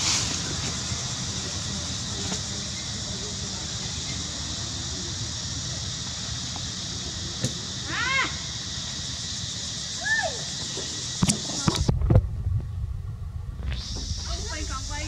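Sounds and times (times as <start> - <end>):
high hiss: 0.0 - 11.9, 13.2 - 15.0
low rumble: 11.8 - 15.0.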